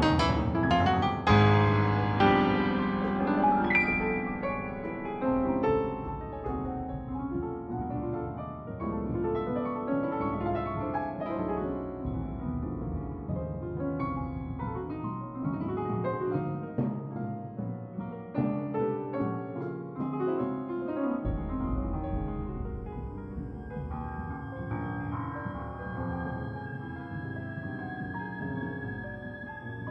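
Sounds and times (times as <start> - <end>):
piano music: 0.0 - 29.9.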